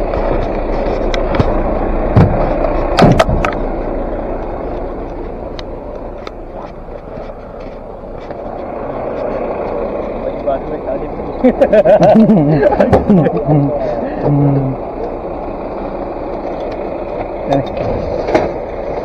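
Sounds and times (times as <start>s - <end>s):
vehicle engine running: 0.0s - 19.0s
sharp knocks and clicks: 0.2s - 3.6s.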